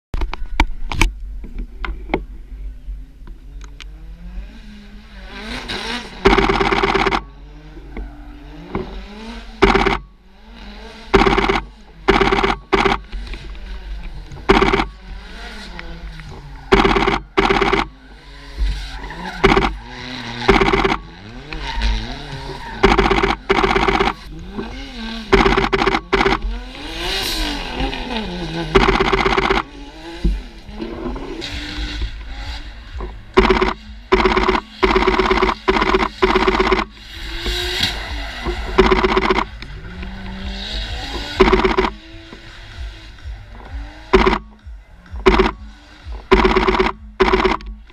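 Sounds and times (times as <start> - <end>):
car engines revving: 0.2 - 47.9
camera shutter rapid clicking: 6.3 - 7.3, 9.6 - 10.0, 11.2 - 13.0, 14.5 - 14.9, 16.7 - 17.9, 19.4 - 19.8, 20.4 - 21.1, 22.8 - 24.2, 25.4 - 26.5, 28.8 - 29.7, 33.4 - 36.9, 38.7 - 39.5, 41.2 - 42.0, 44.2 - 44.4, 45.3 - 45.6, 46.3 - 47.7
tyre squeal: 16.3 - 24.2.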